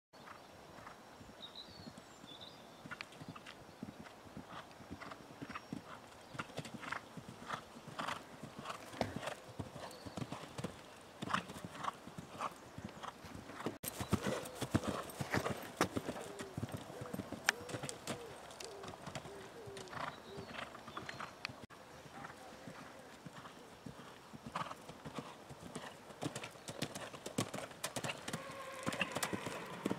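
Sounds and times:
horse hoofbeats on grass: 3.3 - 18.9.

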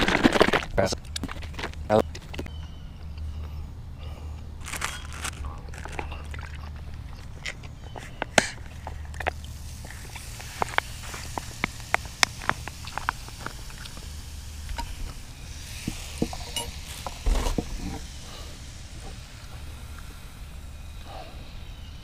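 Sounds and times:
cooking gear clicks and taps: 5.9 - 15.1.

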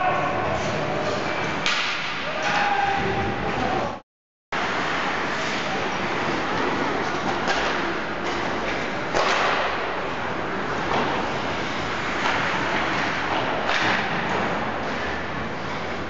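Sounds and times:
hockey sticks clacking on puck: 0.5 - 2.7, 5.4 - 9.7, 12.0 - 16.0
skates on ice: 4.6 - 16.0.

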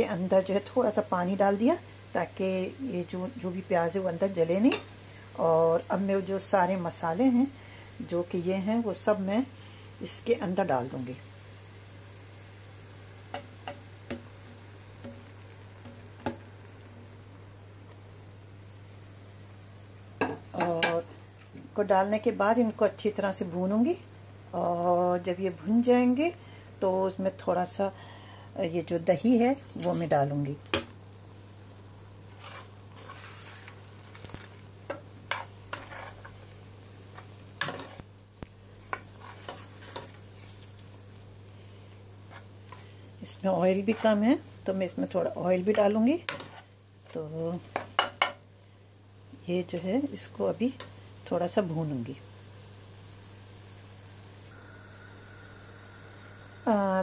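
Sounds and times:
faint sizzle of frying: 0.0 - 57.0
low steady hum: 0.0 - 57.0
spatula scraping a steel pot: 32.3 - 33.7, 35.3 - 36.3.

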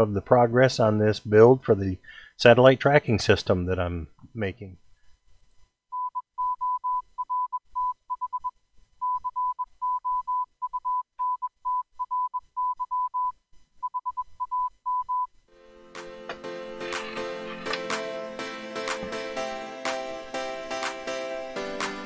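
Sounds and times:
music: 15.5 - 22.0.

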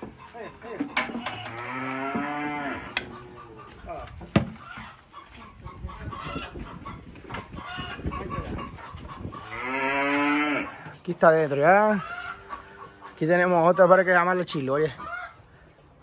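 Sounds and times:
chickens clucking: 0.0 - 16.0
cow mooing: 1.2 - 3.4, 9.5 - 10.8.

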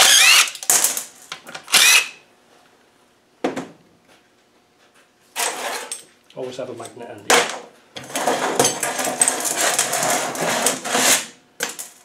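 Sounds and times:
cordless drill motor whine: 0.0 - 0.6, 1.7 - 2.2.

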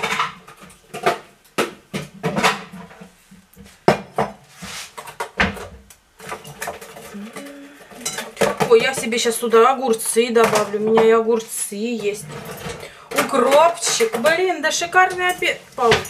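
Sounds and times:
dishes and utensils clattering: 5.0 - 11.2, 11.8 - 16.0.

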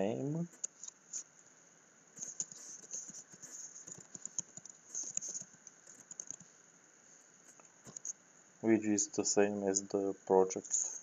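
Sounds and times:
computer keyboard typing: 2.2 - 6.4, 7.9 - 8.1.

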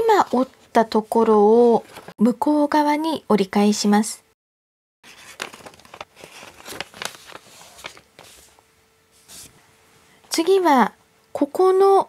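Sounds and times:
paper being folded and creased: 5.0 - 8.6.

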